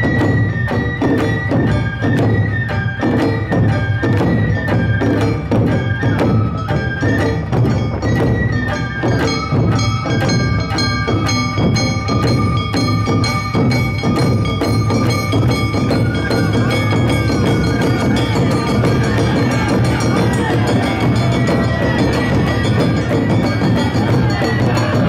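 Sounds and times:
bamboo flute melody: 0.0s - 25.0s
metal gong chiming: 9.2s - 25.0s.

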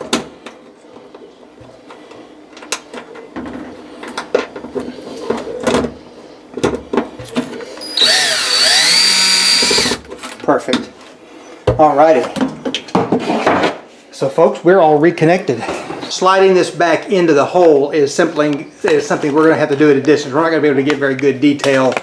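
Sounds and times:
power drill whining: 7.8s - 10.0s.

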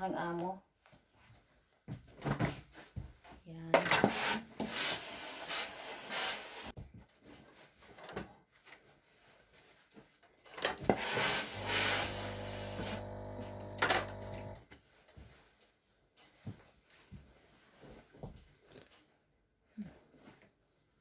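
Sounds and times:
steam iron hissing: 4.6s - 6.8s, 10.9s - 14.6s
pump buzzing: 10.9s - 14.6s
cloth rubbing: 11.0s - 14.6s.

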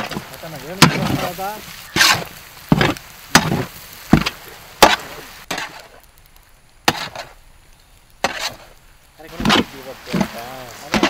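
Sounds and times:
ladle scraping iron pan: 0.0s - 3.6s, 4.8s - 5.9s, 8.2s - 8.7s, 9.3s - 11.0s.

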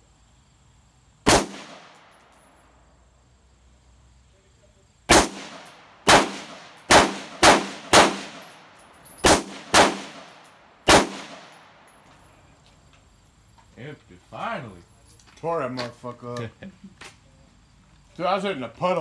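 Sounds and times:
gunshots with ringing tail: 1.3s - 2.3s, 5.1s - 11.8s.

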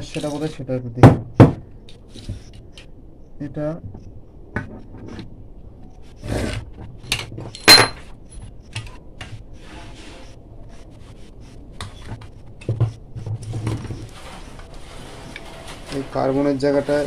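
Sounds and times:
knocks: 1.0s - 1.7s
tools handled and set down: 7.0s - 8.5s.

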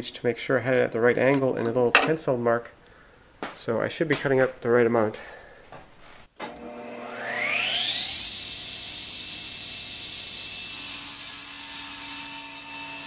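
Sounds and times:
table saw motor whine: 6.5s - 13.0s.

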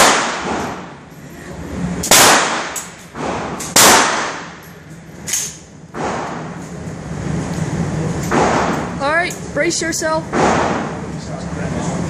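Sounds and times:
gunshots echoing indoors: 0.0s - 1.0s, 2.0s - 4.7s, 5.4s - 6.6s, 10.3s - 11.0s.

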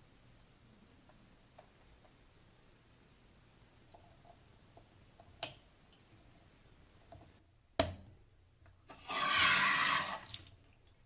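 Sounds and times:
faucet water hissing rush: 9.1s - 10.4s.

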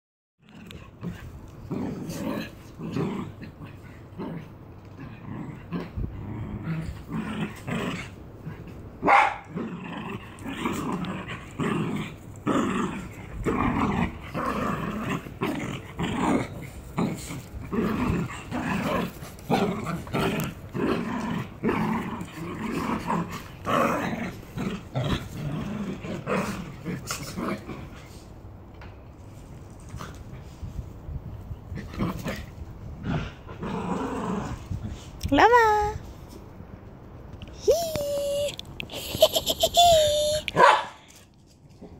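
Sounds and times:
small dogs growling: 0.4s - 28.3s, 31.7s - 35.1s
small dogs barking: 9.0s - 9.6s, 40.5s - 41.0s.

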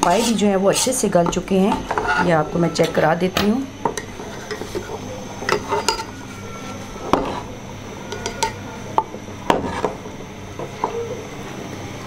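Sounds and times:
ladle stirring in a pot: 0.0s - 3.1s, 3.8s - 10.0s.

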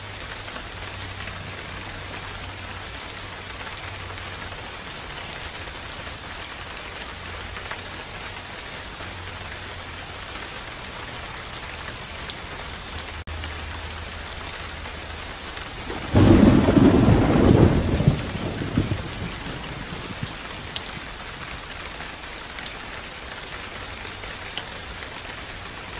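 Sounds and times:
steady rain: 0.0s - 25.9s
loud thunder clap: 15.9s - 20.7s.

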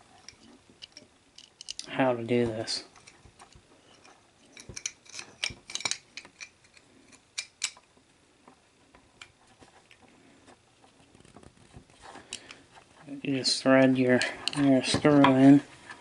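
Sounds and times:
small metal clicks: 0.2s - 1.9s, 2.9s - 8.0s.

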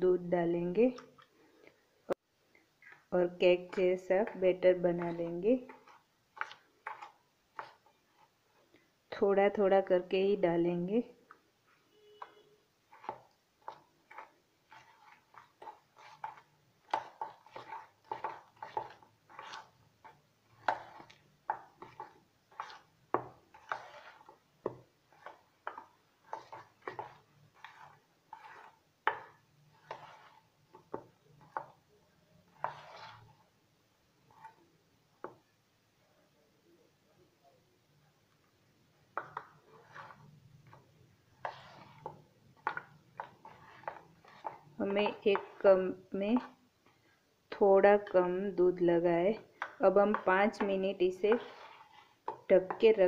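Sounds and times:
spoon scraping metal bowl: 12.1s - 31.8s, 32.4s - 33.4s, 39.2s - 46.5s, 49.4s - 53.0s.

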